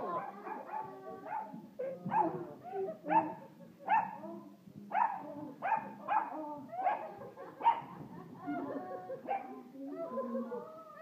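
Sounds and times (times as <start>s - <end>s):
dog barking: 0.2s - 2.4s, 3.1s - 4.2s, 4.9s - 7.9s.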